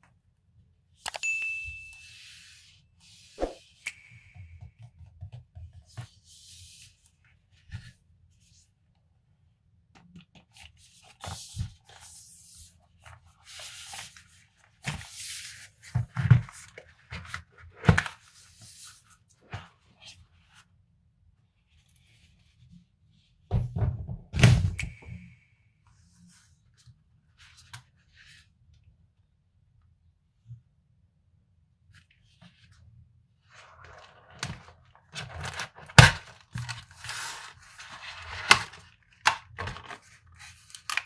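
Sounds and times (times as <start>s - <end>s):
cardboard scraping and sliding: 33.4s - 38.8s.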